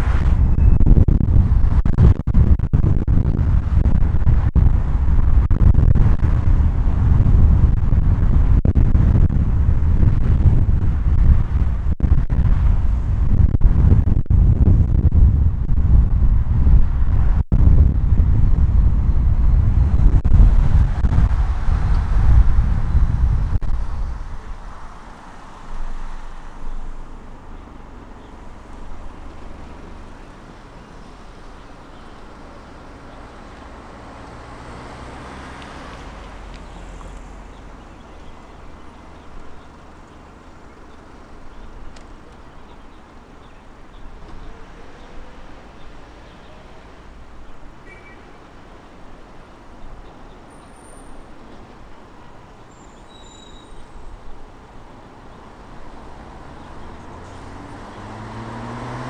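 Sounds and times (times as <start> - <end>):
tyre and engine rumble: 0.0 - 59.0
vehicle passing: 19.8 - 41.9, 54.7 - 59.0.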